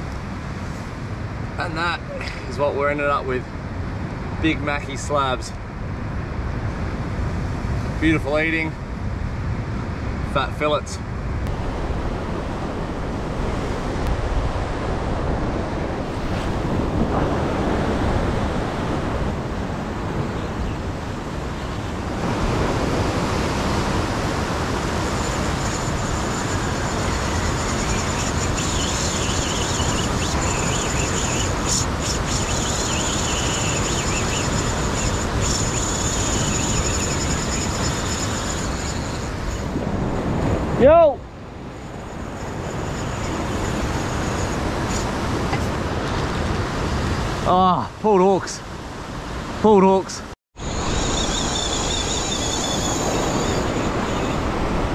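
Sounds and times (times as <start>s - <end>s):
thin high whine: 10.3s - 45.7s, 50.6s - 54.9s
wind buffeting microphone: 11.0s - 47.5s, 50.6s - 54.9s
ocean surf breaking on rocks: 11.4s - 54.9s.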